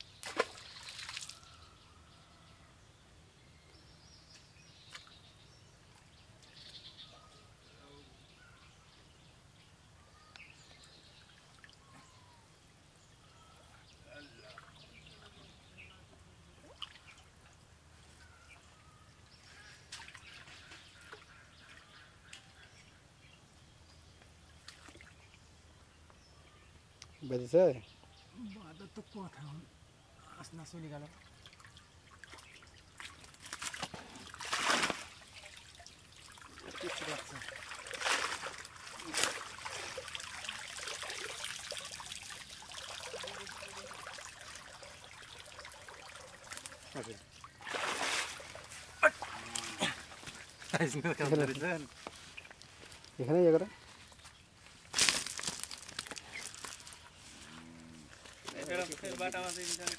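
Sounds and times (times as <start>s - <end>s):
water dripping from net: 0.2s - 1.4s, 31.1s - 51.6s, 55.0s - 57.1s.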